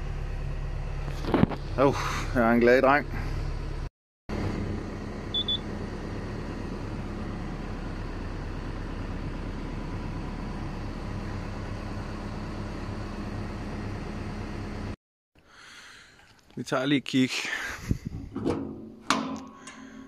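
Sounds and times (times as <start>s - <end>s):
excavator diesel engine idling: 0.0s - 15.0s
short high beeps: 5.4s - 5.6s.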